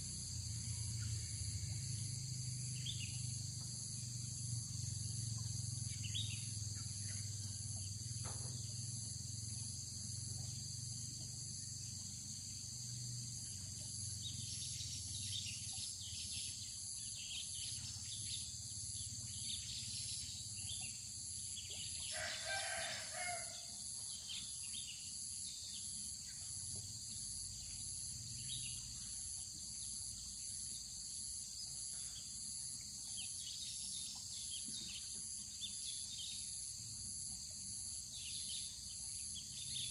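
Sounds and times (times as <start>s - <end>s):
insects droning: 0.0s - 39.9s
rooster crowing: 22.1s - 23.7s.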